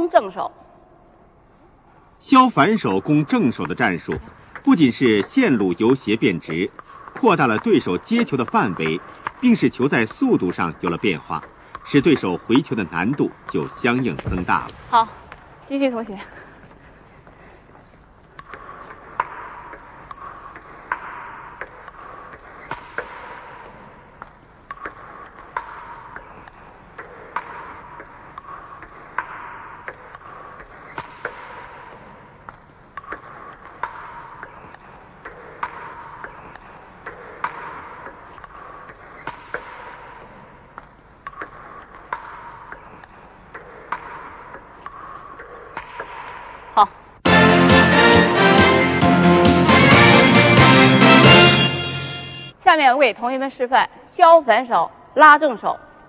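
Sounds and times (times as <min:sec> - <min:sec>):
table tennis ball bouncing on table: 0:02.6 - 0:15.6, 0:18.2 - 0:47.1
table tennis ball clicking off bats: 0:02.6 - 0:15.6, 0:18.0 - 0:46.9.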